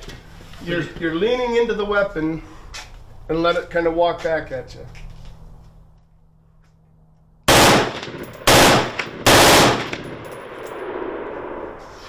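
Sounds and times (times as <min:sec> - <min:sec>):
automatic rifle bursts: 0:07.5 - 0:10.5
gunshot echo: 0:07.5 - 0:11.8.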